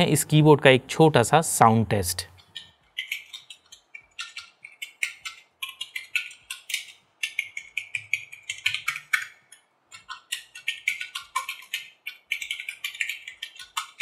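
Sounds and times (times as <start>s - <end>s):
fast typing on a keyboard: 2.4s - 14.0s.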